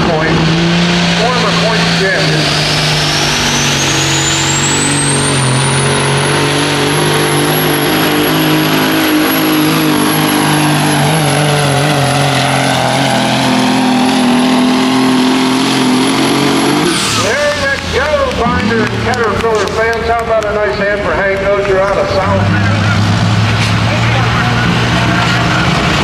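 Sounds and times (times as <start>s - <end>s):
diesel truck engine at full throttle: 0.0s - 26.0s
high turbocharger whistle: 2.2s - 17.6s.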